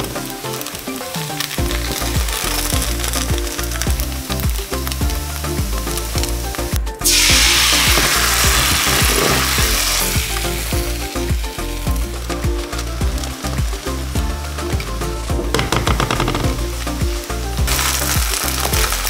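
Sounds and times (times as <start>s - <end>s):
batter sizzling in wok: 0.0s - 15.2s, 16.6s - 19.0s
loud hiss of batter hitting pan: 7.0s - 10.7s.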